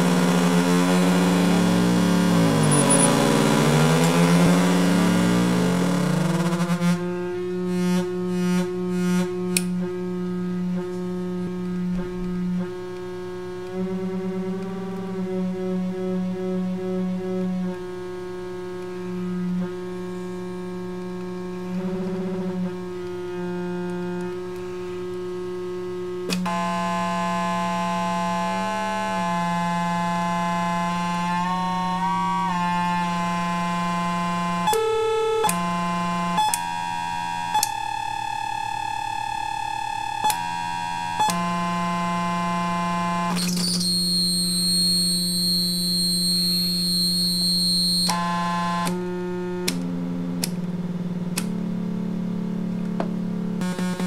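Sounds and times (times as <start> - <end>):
buzzy synthesizer tones: 0.0 - 54.0
low synthesizer drone: 0.0 - 54.0
high whistling tones: 0.9 - 5.7, 43.4 - 48.2.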